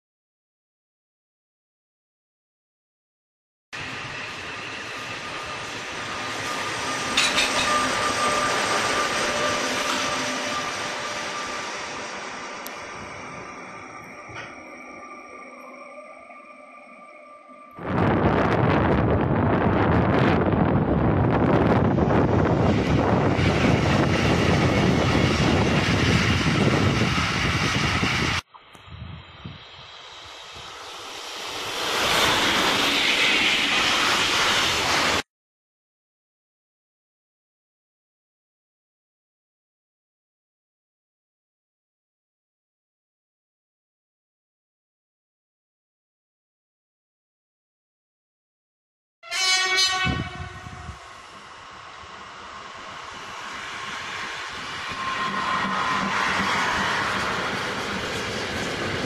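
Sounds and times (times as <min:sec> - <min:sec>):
train wheels rushing on rail: 0:03.8 - 0:14.6, 0:17.8 - 0:35.2, 0:49.5 - 0:59.0
electric locomotive passing: 0:03.8 - 0:35.2, 0:49.3 - 0:59.0.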